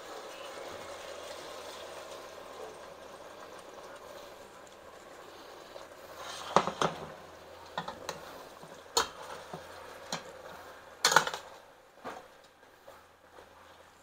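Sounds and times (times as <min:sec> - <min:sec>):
broth simmering: 0:00.0 - 0:14.0.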